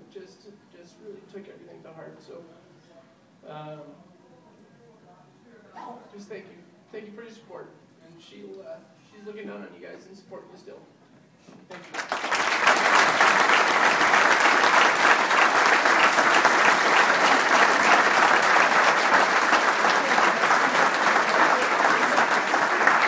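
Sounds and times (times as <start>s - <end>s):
audience applauding: 11.7s - 23.0s.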